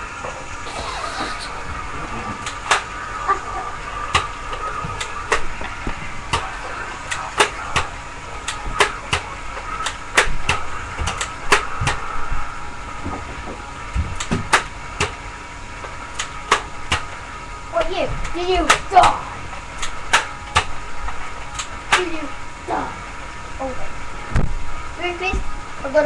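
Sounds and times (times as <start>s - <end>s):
background hum: 0.0s - 26.0s
sharp clicks and snaps: 16.1s - 17.1s, 19.8s - 20.7s, 21.5s - 22.1s.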